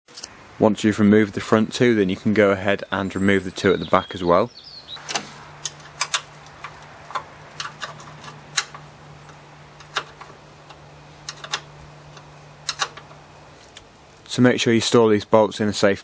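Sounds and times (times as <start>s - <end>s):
low steady hum: 0.2s - 16.0s
spanner clicking on metal: 5.0s - 13.9s.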